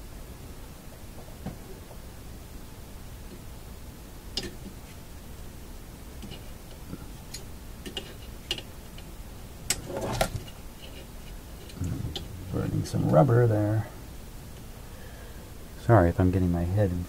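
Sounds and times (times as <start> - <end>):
small clicks and taps: 7.3 - 9.1
handling scrape or knock: 9.8 - 11.1.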